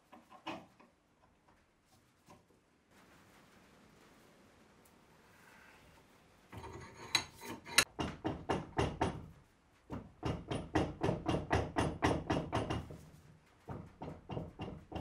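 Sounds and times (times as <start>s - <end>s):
scraping strokes on metal vice: 6.5s - 7.9s.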